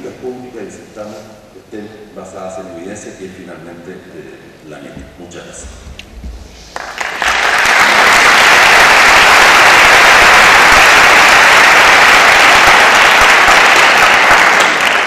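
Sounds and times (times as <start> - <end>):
audience applauding: 6.7 - 15.0.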